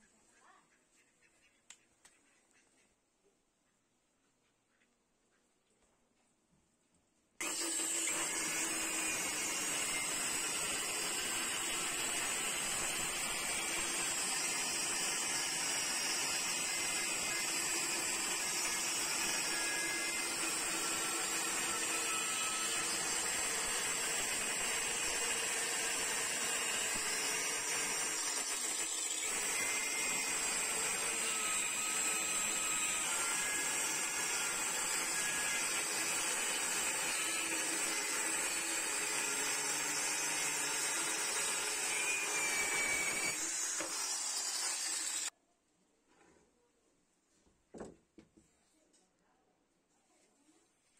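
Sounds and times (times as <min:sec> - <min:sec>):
power tool cutting wood: 0:07.4 - 0:45.3.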